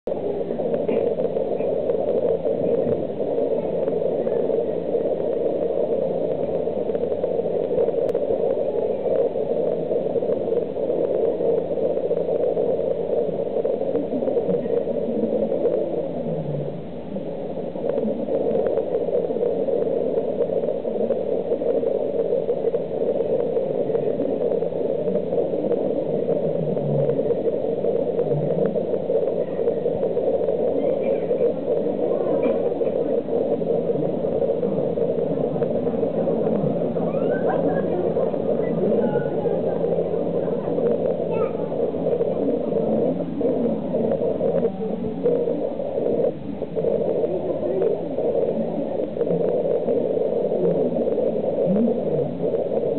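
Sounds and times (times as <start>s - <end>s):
faint voices murmuring: 23.2s - 52.9s.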